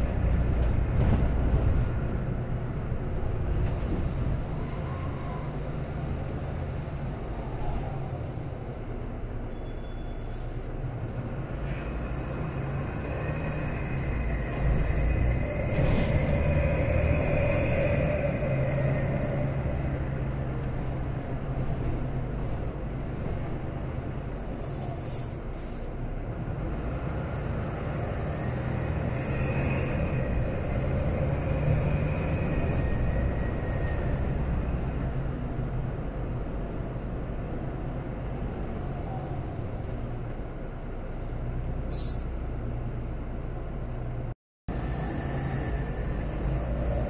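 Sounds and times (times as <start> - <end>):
bus diesel engine running: 0.0 - 47.0.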